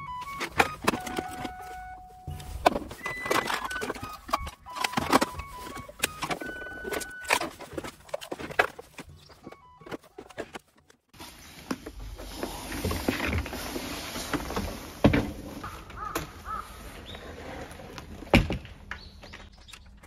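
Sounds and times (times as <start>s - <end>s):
plastic cases clicking and clattering: 0.0s - 11.1s
small tackle rattling: 0.0s - 11.2s.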